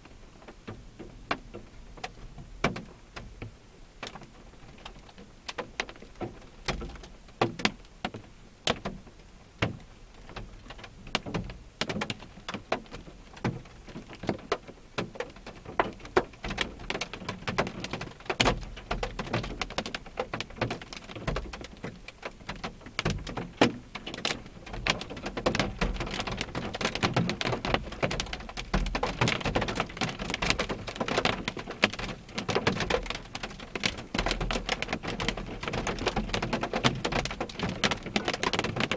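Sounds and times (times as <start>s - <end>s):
rain on car windshield: 0.0s - 38.9s.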